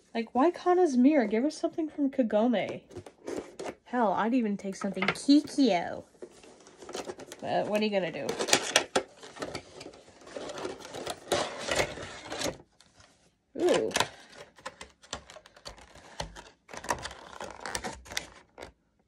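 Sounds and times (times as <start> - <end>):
plastic blister packaging crackling: 13.6 - 18.7.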